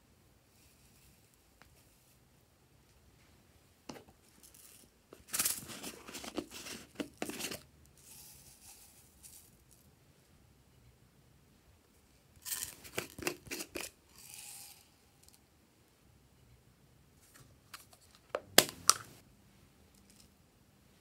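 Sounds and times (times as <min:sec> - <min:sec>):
foam beads rattling in plastic cup: 0:04.4 - 0:09.7, 0:12.4 - 0:15.3.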